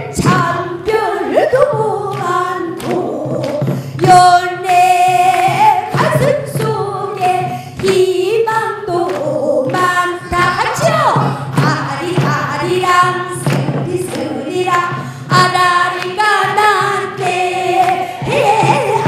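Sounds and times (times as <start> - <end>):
woman singing into a microphone: 0.0 - 19.0.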